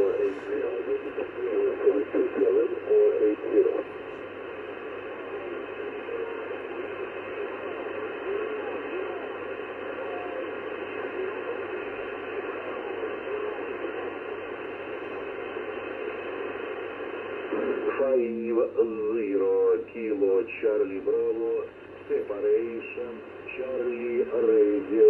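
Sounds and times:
radio static hiss: 0:00.0 - 0:25.0.

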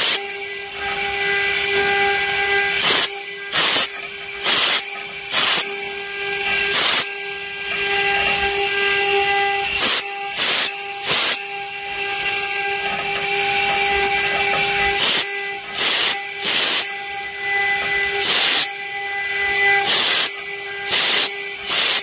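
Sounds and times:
hiss of cutting and spraying water: 0:00.0 - 0:00.2, 0:02.7 - 0:05.7, 0:06.7 - 0:07.1, 0:09.7 - 0:11.5, 0:14.9 - 0:16.9, 0:17.6 - 0:18.7, 0:19.7 - 0:22.0
high spindle whine: 0:00.0 - 0:22.0
short loud hissing bursts: 0:02.8 - 0:05.6, 0:06.7 - 0:07.1, 0:09.8 - 0:11.4, 0:15.0 - 0:16.8, 0:18.2 - 0:18.7, 0:19.8 - 0:20.3, 0:20.9 - 0:22.0.

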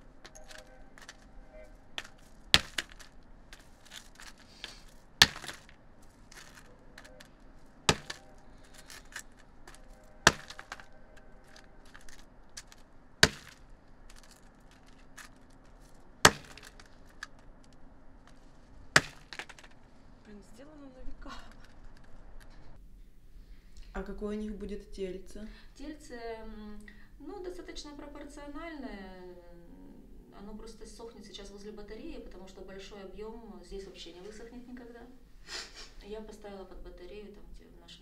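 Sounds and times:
tile fragments clinking: 0:00.2 - 0:01.3, 0:01.9 - 0:07.3, 0:07.9 - 0:18.4, 0:19.0 - 0:19.8
hammer cracking ceramic tile: 0:02.0 - 0:05.7, 0:07.9 - 0:10.9, 0:11.5 - 0:15.3, 0:16.2 - 0:17.4, 0:19.0 - 0:19.7.

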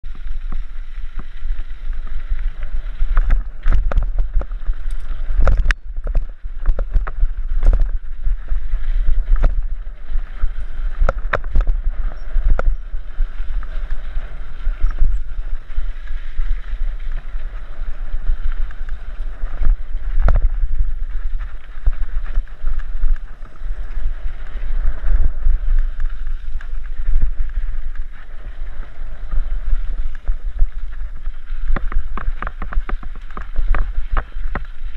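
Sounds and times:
tyres crunching on gravel: 0:00.0 - 0:34.9
wind buffeting microphone: 0:00.0 - 0:34.9
bike knocks and rattles: 0:31.3 - 0:34.9.

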